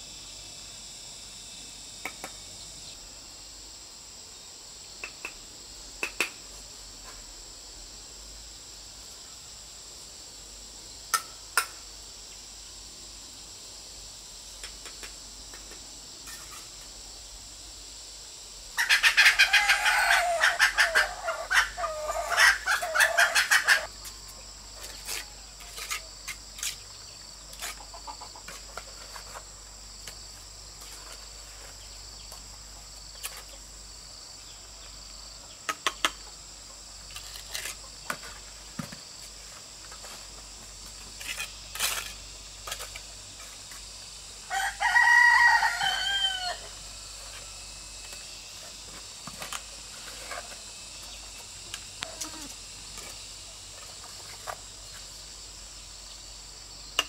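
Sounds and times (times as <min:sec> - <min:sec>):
insects droning: 0:00.0 - 0:57.0
poultry rattling call: 0:18.8 - 0:23.9.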